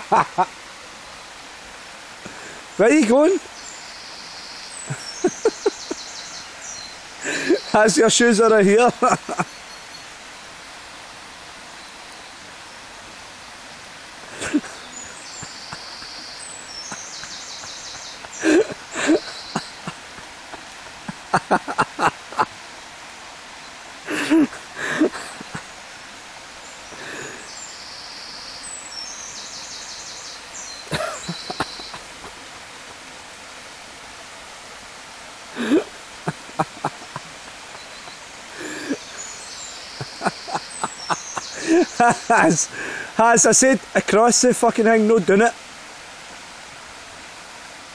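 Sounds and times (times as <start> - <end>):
stream flowing over stones: 0.0 - 47.9.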